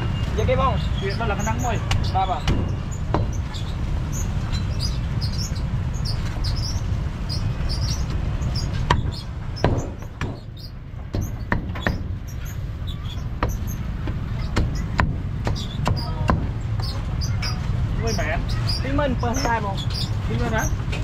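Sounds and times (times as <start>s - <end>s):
cleaver chopping on wooden block: 13.4s - 16.5s.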